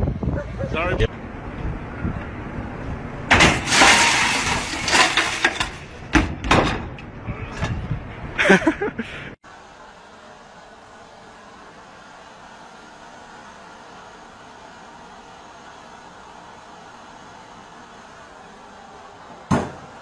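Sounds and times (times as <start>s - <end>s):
glass panel shattering: 3.3s - 6.9s.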